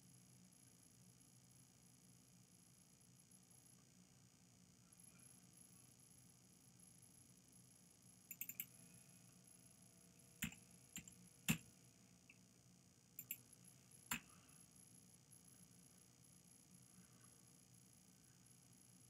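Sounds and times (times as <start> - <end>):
computer keyboard keys clicking: 8.3 - 8.7, 10.4 - 11.6, 13.2 - 13.4.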